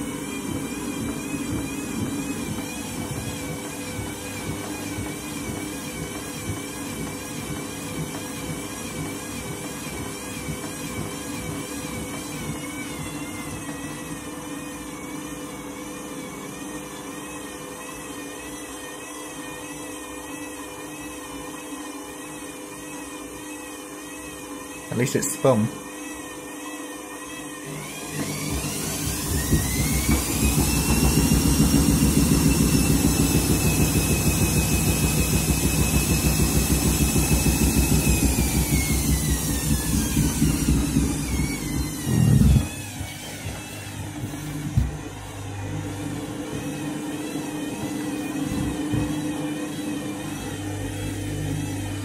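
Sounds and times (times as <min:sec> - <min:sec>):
rhythmic thumping from drum: 0:00.0 - 0:15.6, 0:28.0 - 0:52.0
drum turning with quiet hum: 0:00.0 - 0:52.0
washing machine motor whining: 0:00.0 - 0:52.0.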